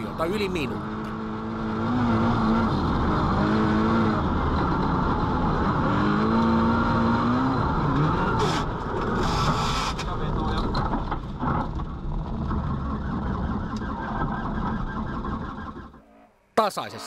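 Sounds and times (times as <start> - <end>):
car engine revving: 0.0 - 16.1.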